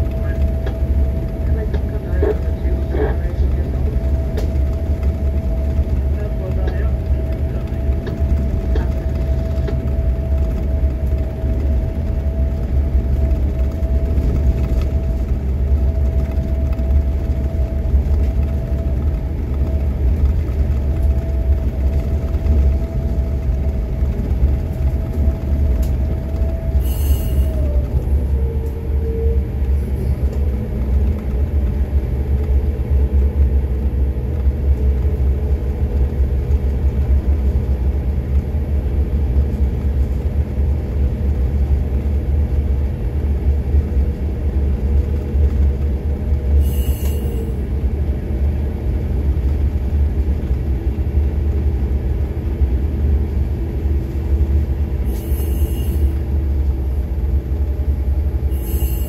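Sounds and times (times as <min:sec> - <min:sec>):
diesel engines rumbling: 0:00.0 - 0:59.0
engine whine: 0:00.0 - 0:59.0.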